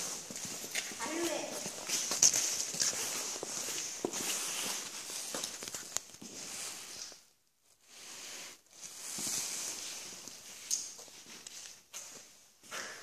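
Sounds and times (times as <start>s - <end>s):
footsteps on gravel: 0.0s - 5.6s.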